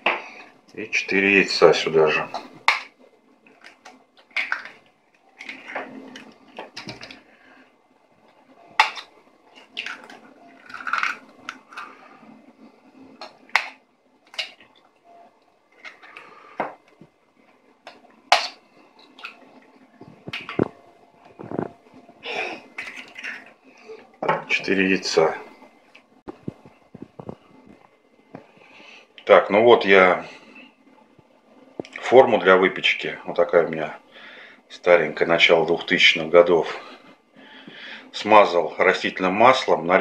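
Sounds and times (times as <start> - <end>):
eggshells breaking: 8.8 - 11.9.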